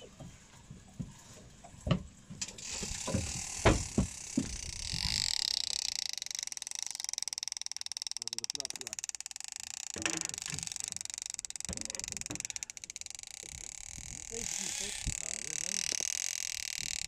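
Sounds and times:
knocks from rod and reel handling: 1.8s - 13.4s
fishing reel ratchet ticking: 2.4s - 17.0s.

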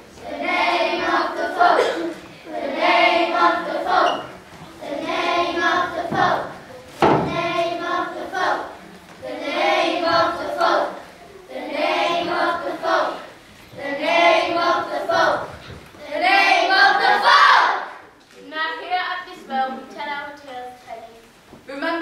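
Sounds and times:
children singing in unison: 0.1s - 17.9s
sharp knock: 7.0s - 7.4s.

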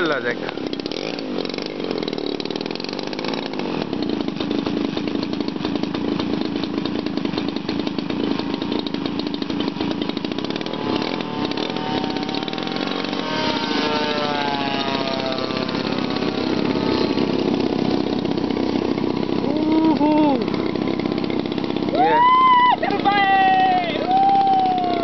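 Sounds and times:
model aircraft engine buzzing: 0.0s - 25.0s
higher wavering engine note: 10.2s - 25.0s.

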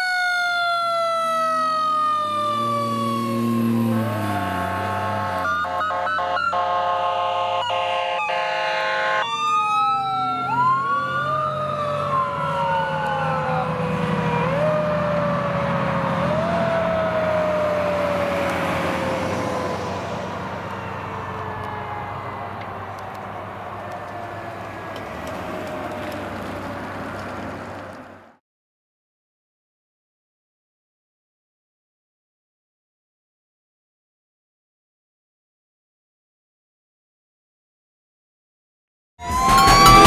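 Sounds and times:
fire engine air horn: 0.0s - 22.9s
sirens wailing: 0.0s - 28.4s, 39.2s - 40.0s
diesel engine rumble: 0.7s - 7.4s, 9.3s - 28.4s.

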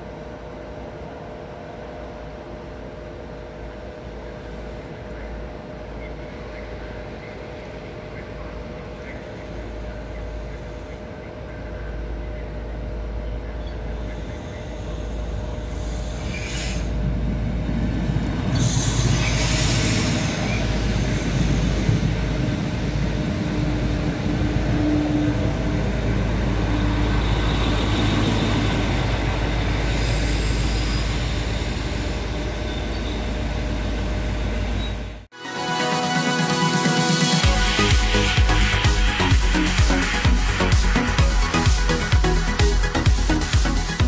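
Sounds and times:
train wheels rumbling: 0.0s - 35.3s
wheel or brake squeal: 13.6s - 17.0s, 18.6s - 21.9s, 26.8s - 35.2s.

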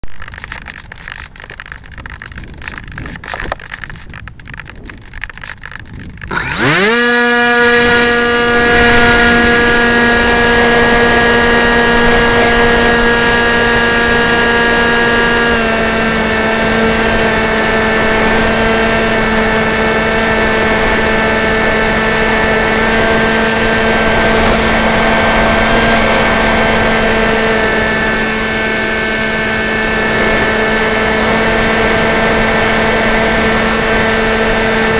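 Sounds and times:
handling noise: 0.0s - 14.6s
model plane motor whine: 0.2s - 34.9s
wind rush: 5.8s - 28.2s.

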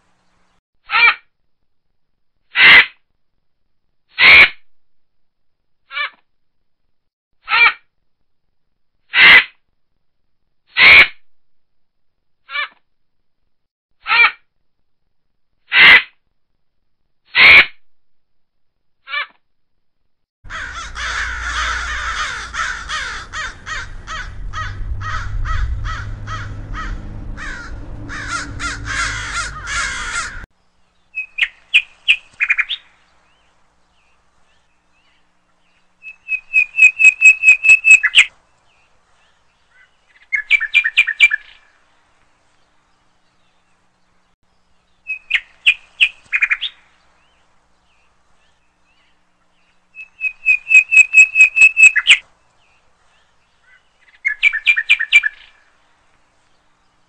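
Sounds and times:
crow harsh distress caws: 20.5s - 30.5s.

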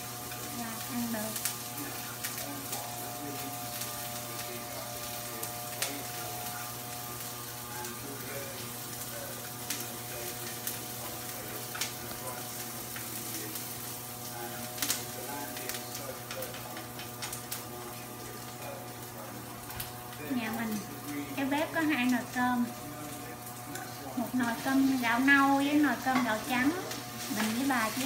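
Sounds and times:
egg sizzling in a skillet: 0.0s - 28.0s
chopsticks tapping pan: 25.9s - 28.0s.

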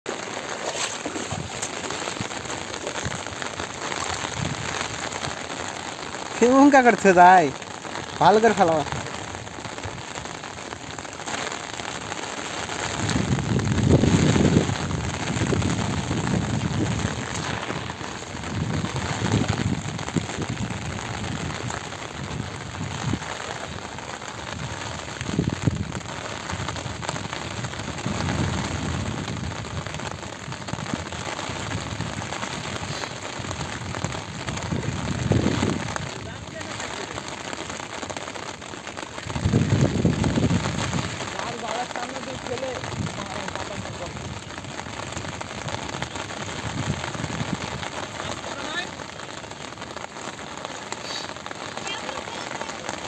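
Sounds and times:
rain pattering on water: 0.0s - 53.0s
legs wading through water: 0.1s - 5.4s.

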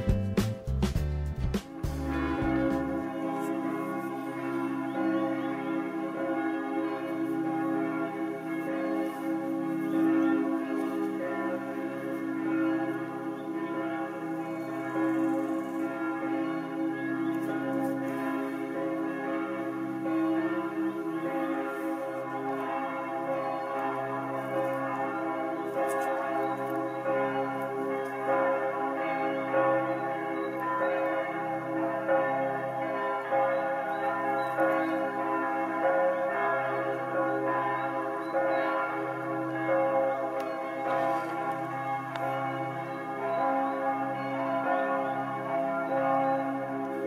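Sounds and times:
ambient music with chiming tones: 39.7s - 46.5s.

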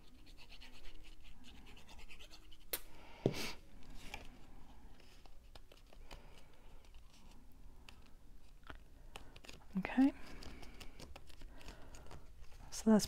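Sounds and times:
paper ticking and rustling: 5.0s - 12.7s.

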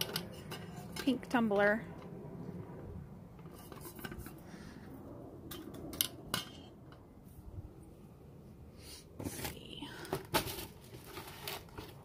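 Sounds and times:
metal tumbler clinks and knocks: 0.0s - 1.4s, 5.5s - 6.7s.

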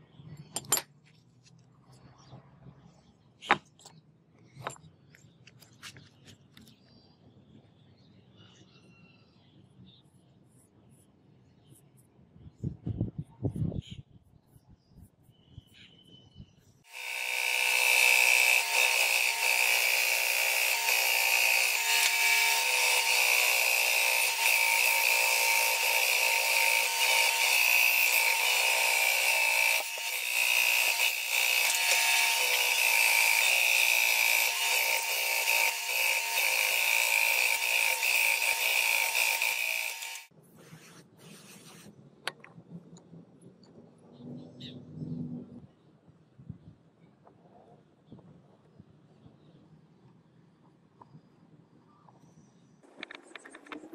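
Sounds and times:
band saw cutting wood: 16.9s - 40.3s.

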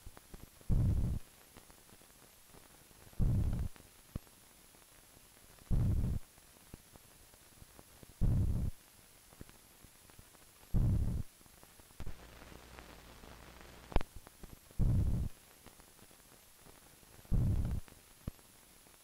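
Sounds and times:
steady low hum: 0.0s - 1.4s, 2.9s - 3.8s, 5.6s - 6.3s, 8.1s - 8.8s, 10.7s - 11.4s, 12.0s - 15.5s, 17.0s - 17.9s
low rumbling pulses: 0.7s - 1.2s, 3.2s - 3.7s, 5.7s - 6.2s, 8.2s - 8.7s, 10.8s - 11.2s, 14.8s - 15.3s, 17.3s - 17.8s.

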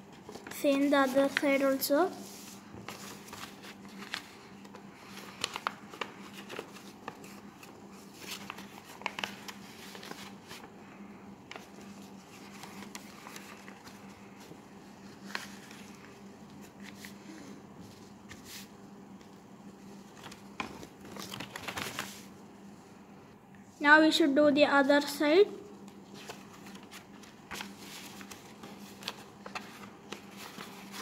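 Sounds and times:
paper folding and crinkling: 0.0s - 22.4s, 25.8s - 31.0s.

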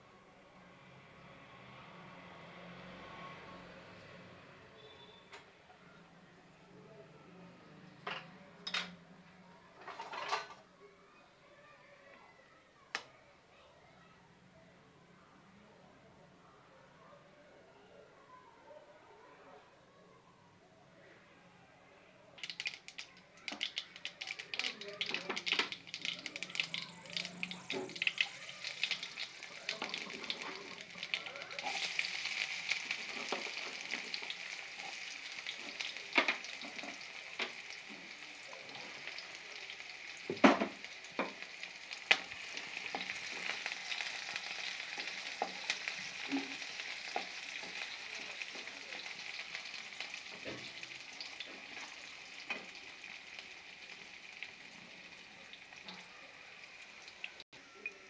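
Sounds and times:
pan sizzling: 22.4s - 58.0s
seeds crackling in hot oil: 22.4s - 58.0s.

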